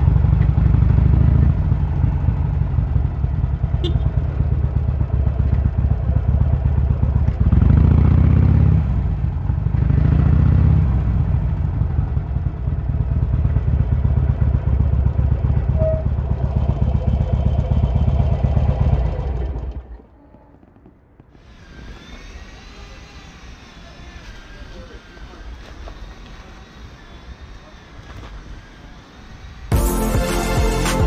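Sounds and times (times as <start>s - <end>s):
motorcycle engine running: 0.0s - 20.2s.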